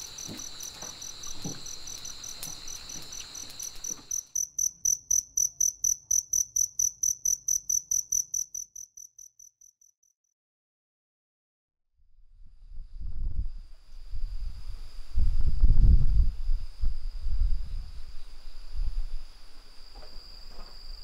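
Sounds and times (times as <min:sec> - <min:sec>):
crickets chorus trilling: 0:00.0 - 0:09.5, 0:16.2 - 0:21.0
single cricket chirping: 0:00.0 - 0:10.0, 0:13.9 - 0:21.0.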